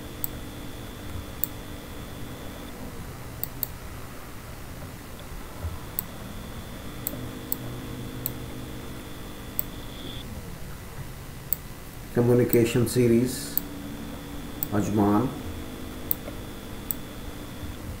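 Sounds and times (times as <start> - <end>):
steady low hum: 0.0 - 18.0
computer mouse clicking: 3.4 - 3.8, 11.5 - 11.7.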